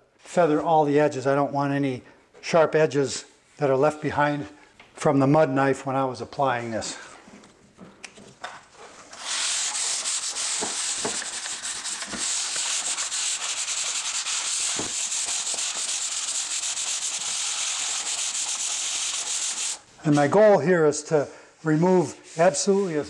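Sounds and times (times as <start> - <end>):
hand sanding drywall: 8.8 - 20.4, 21.7 - 23.0.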